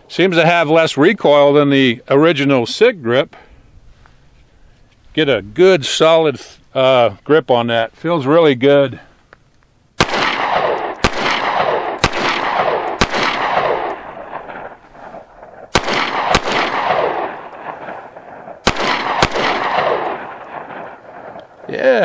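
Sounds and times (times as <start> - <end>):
pistol shots with echo: 10.0 - 14.8, 15.4 - 21.6.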